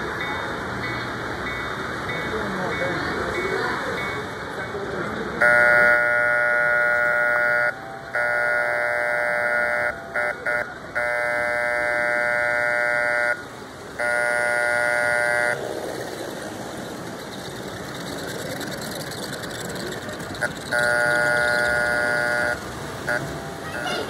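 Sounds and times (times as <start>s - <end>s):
model train horn blasts: 5.4s - 13.4s, 14.0s - 15.6s, 20.4s - 23.2s
steady running noise: 10.8s - 24.0s.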